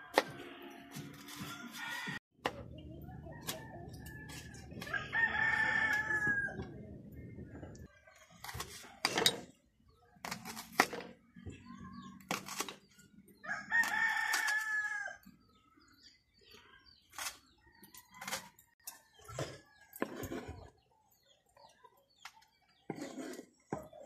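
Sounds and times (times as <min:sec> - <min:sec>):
rooster crowing: 0:01.4 - 0:02.2, 0:03.2 - 0:06.7.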